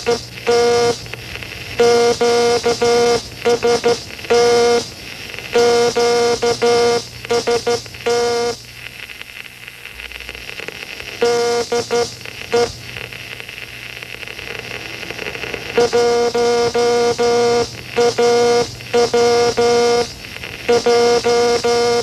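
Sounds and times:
buzzy morse code tone: 0:00.0 - 0:01.1, 0:01.7 - 0:04.9, 0:05.5 - 0:08.6, 0:11.2 - 0:12.7, 0:15.6 - 0:22.0
crackling static: 0:00.0 - 0:22.0.

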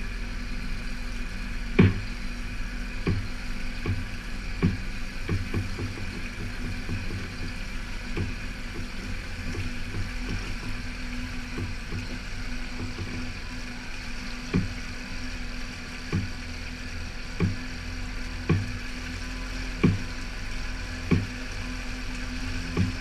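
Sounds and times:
outboard motor running: 0:00.0 - 0:23.0
low thumps and knocks: 0:01.7 - 0:13.5, 0:14.4 - 0:15.2, 0:16.0 - 0:16.5, 0:17.3 - 0:18.9, 0:19.7 - 0:21.6, 0:22.6 - 0:23.0.

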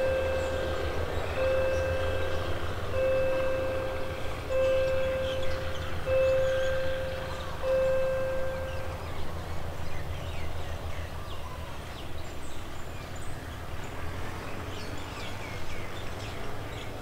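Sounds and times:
steady low rumble: 0:00.0 - 0:10.9
birds chirping: 0:00.0 - 0:17.0.

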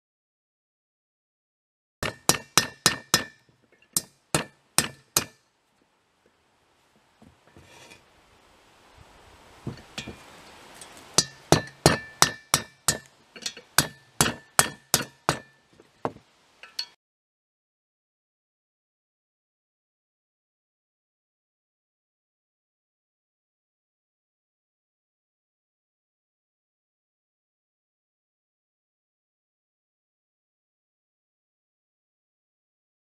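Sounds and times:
metal rod tapping with ringing: 0:02.0 - 0:05.4, 0:11.2 - 0:15.7, 0:16.6 - 0:17.0
faint scraping: 0:07.2 - 0:08.2.

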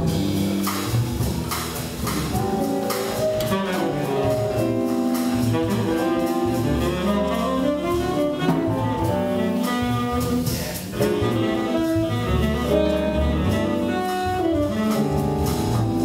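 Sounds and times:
double bass: 0:00.0 - 0:16.0
drums: 0:00.0 - 0:16.0
tenor saxophone solo: 0:03.2 - 0:16.0.

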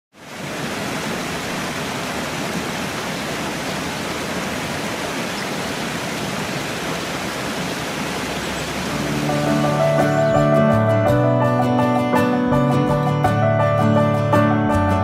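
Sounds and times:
waterfall rushing: 0:00.2 - 0:11.1.

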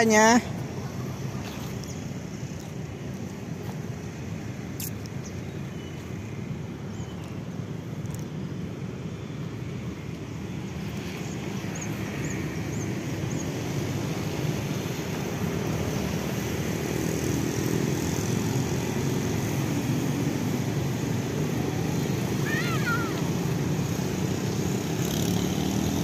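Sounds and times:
distant engine drone: 0:10.7 - 0:26.0.

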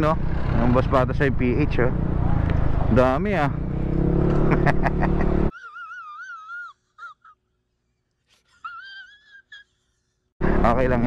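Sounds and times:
motorcycle engine: 0:00.0 - 0:05.5, 0:10.4 - 0:11.0
road noise: 0:00.0 - 0:05.5, 0:10.4 - 0:11.0.

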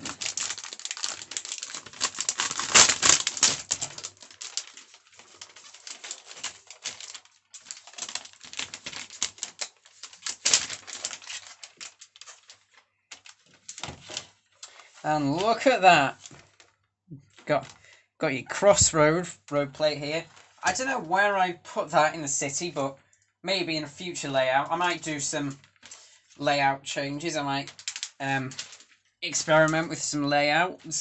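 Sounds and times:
plastic film crinkling: 0:00.0 - 0:18.0, 0:19.8 - 0:21.2, 0:24.2 - 0:26.4, 0:27.2 - 0:30.1.

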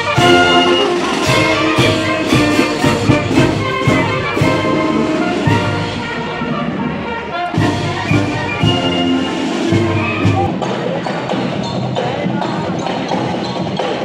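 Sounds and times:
drum and cymbal beat: 0:00.0 - 0:06.4, 0:07.5 - 0:14.0
marching wind band playing: 0:00.0 - 0:11.4
sousaphone bass: 0:07.8 - 0:10.6.

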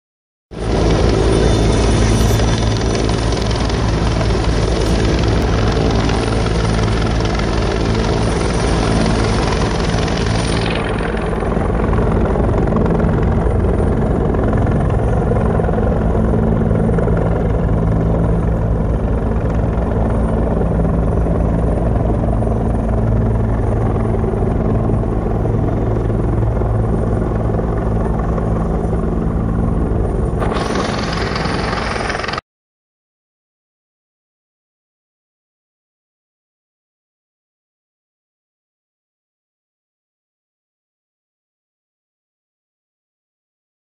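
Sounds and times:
helicopter rotor beating: 0:00.6 - 0:32.4.

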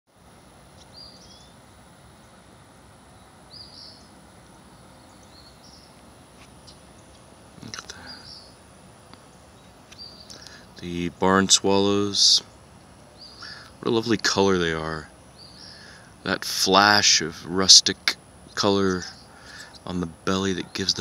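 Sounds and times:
outdoor background hiss: 0:00.1 - 0:21.0
swallows chirping: 0:00.8 - 0:01.6, 0:03.1 - 0:08.6, 0:09.2 - 0:16.4, 0:18.5 - 0:21.0.

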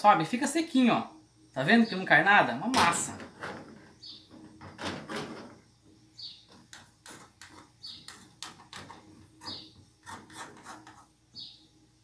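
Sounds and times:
metal spoon scraping frying pan: 0:07.0 - 0:11.1.

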